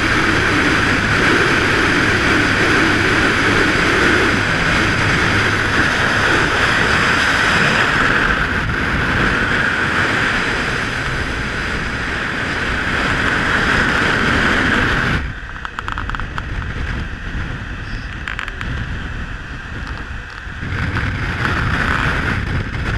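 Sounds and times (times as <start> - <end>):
motorcycle wind and road noise: 0.0 - 22.9.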